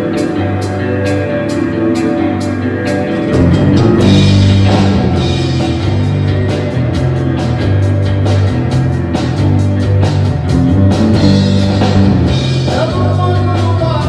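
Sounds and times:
rock band playing: 0.0s - 14.0s
sustained bass notes: 3.2s - 13.8s
drum beat with cymbals: 3.3s - 14.0s.

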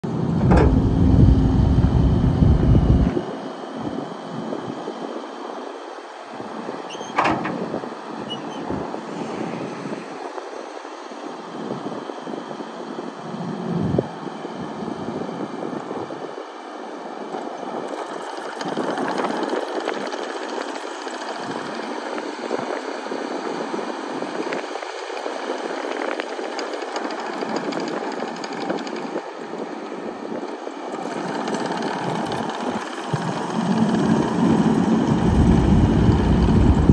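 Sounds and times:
diesel engine running: 0.0s - 4.4s, 30.9s - 36.9s.

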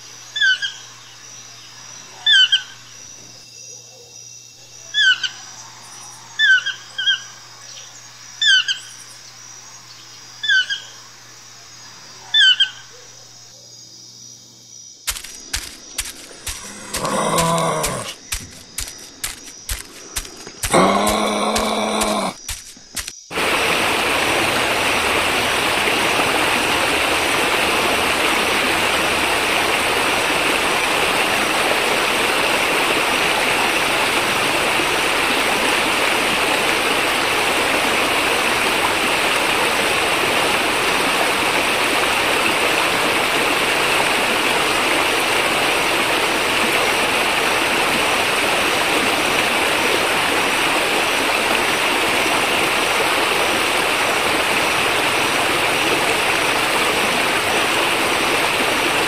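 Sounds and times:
water rushing over boulders: 15.1s - 59.0s.

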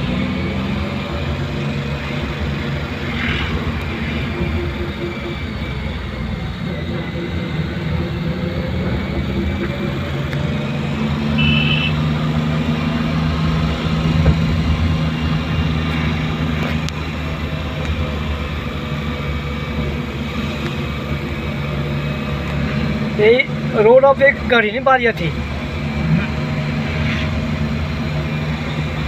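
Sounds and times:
road noise: 0.0s - 29.0s
vehicle engine running: 0.0s - 29.0s
short high beep: 11.4s - 12.0s.

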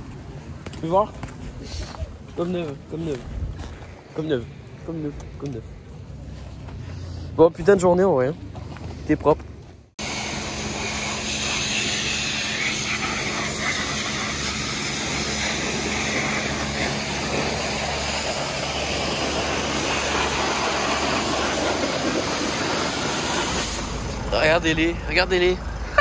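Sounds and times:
pressure washer spray hiss: 10.0s - 24.2s.

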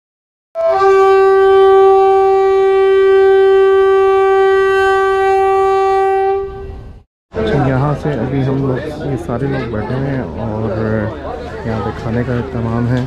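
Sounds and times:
long steady horn blast: 0.6s - 7.0s.

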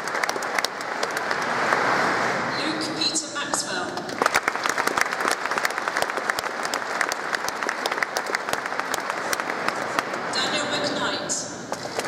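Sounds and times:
audience applauding: 0.0s - 2.0s, 4.0s - 10.3s, 11.7s - 12.0s.

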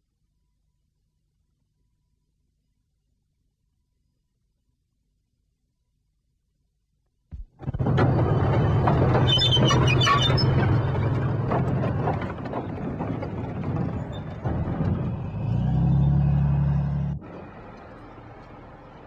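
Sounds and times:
tank engine running: 7.6s - 19.0s
steel tracks clanking and squealing: 7.7s - 16.3s.

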